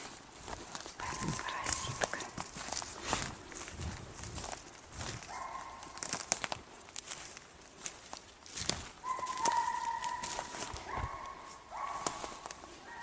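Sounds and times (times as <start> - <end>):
footsteps on forest floor: 0.0 - 13.0
hounds baying: 5.2 - 6.1, 9.0 - 13.0
twigs snapping: 5.9 - 10.8.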